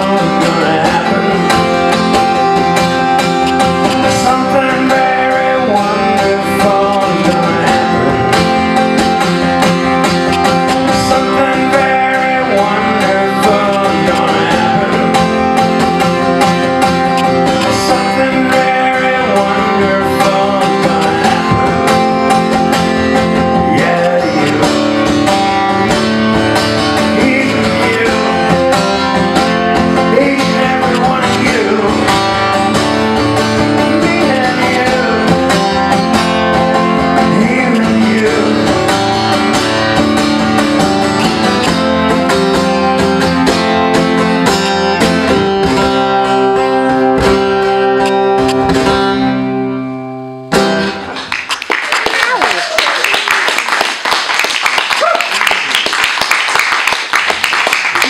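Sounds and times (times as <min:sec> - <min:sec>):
man singing: 0:00.0 - 0:44.3
acoustic guitar strummed and picked: 0:00.0 - 0:51.8.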